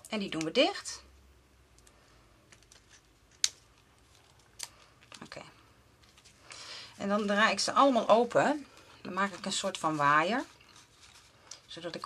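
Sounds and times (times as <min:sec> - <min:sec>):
paper rustling: 0:08.7 - 0:12.0.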